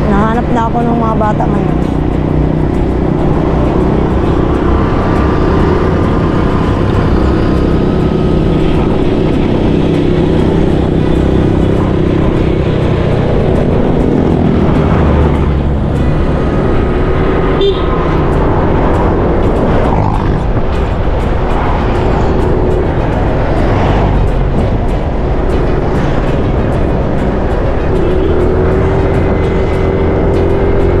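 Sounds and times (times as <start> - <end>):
motor traffic: 0.0 - 31.0
motorcycle engine running: 0.0 - 31.0.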